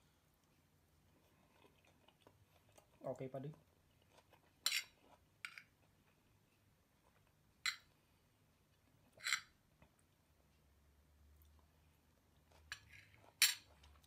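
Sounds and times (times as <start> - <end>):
metal spoon scraping ceramic plate: 4.6 - 5.6, 9.2 - 9.5.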